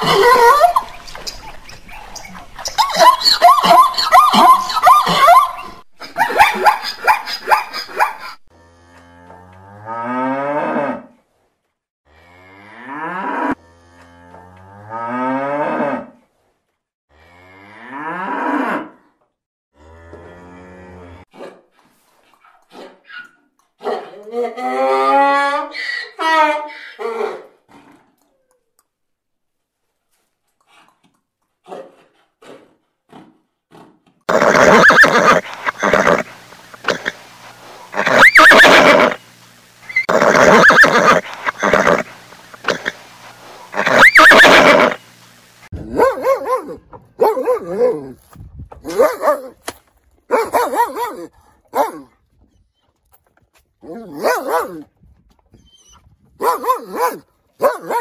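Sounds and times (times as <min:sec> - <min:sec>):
zebras barking: 0:00.0 - 0:08.4, 0:34.3 - 0:39.2, 0:39.8 - 0:45.0
horse whinnying loudly: 0:34.3 - 0:37.2, 0:37.9 - 0:39.2, 0:39.9 - 0:43.0, 0:43.7 - 0:45.0.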